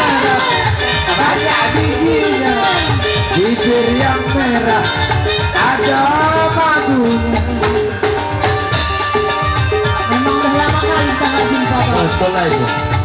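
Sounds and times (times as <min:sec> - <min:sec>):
person singing: 0:00.0 - 0:08.1
drum and percussion rhythm: 0:00.0 - 0:13.0.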